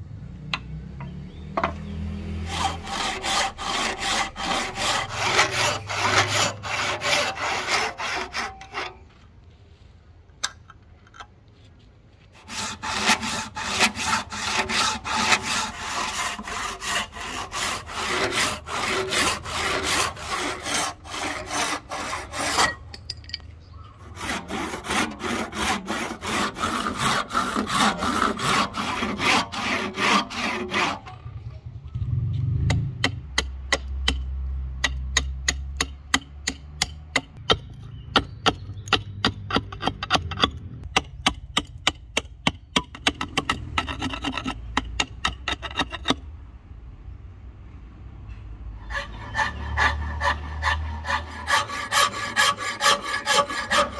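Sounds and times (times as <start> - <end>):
hand saw rasping through wood: 2.4 - 9.0, 12.4 - 22.8, 24.0 - 31.2, 48.8 - 53.9.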